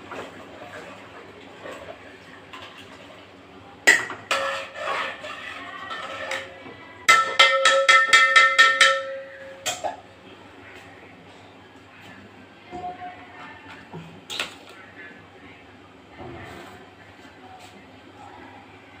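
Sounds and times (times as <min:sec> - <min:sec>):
metal pot struck by utensil: 0:03.9 - 0:04.8, 0:07.1 - 0:10.0.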